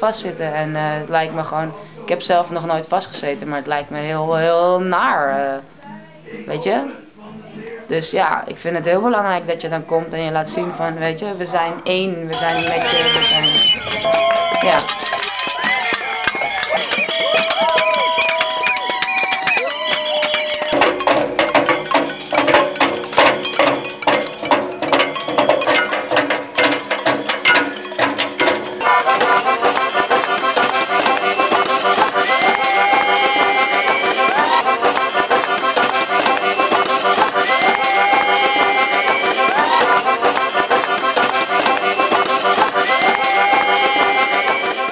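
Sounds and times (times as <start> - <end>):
banging on pots and cowbells: 12.4 - 43.7
instrumental music with steady beat: 13.8 - 44.9.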